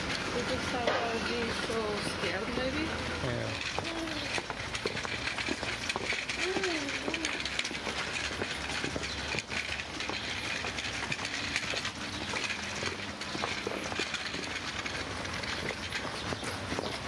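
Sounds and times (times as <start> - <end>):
street traffic rumble: 0.0 - 17.0.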